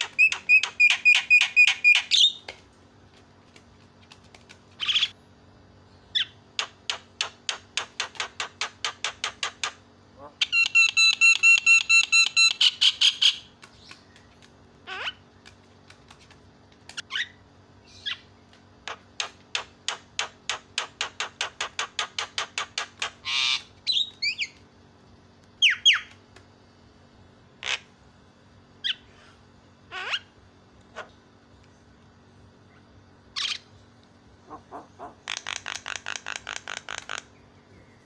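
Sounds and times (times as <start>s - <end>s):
myna calling: 34.4s - 37.2s.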